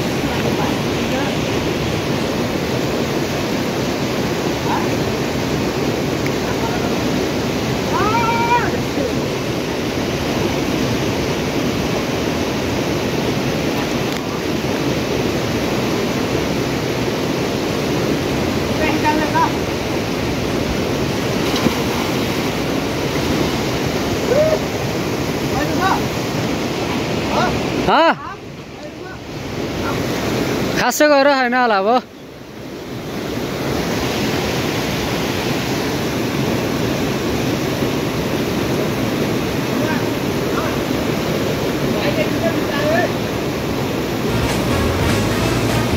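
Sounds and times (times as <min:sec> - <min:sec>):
river rushing: 0:00.0 - 0:45.9.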